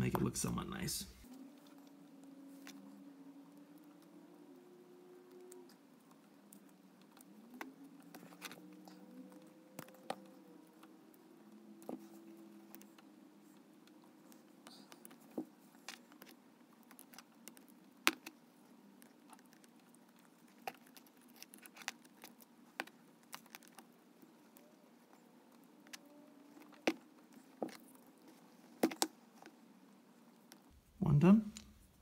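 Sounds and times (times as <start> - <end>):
electrical tape crackling and clicking: 5.2 - 30.8.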